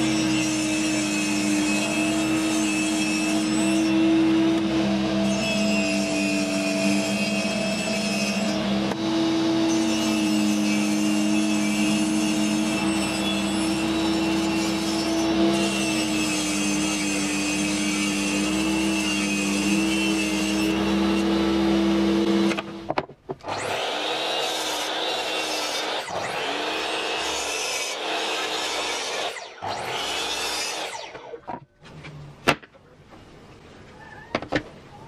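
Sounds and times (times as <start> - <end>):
saw blade rasping through board: 0.0 - 22.6
table saw motor whine: 0.0 - 31.3.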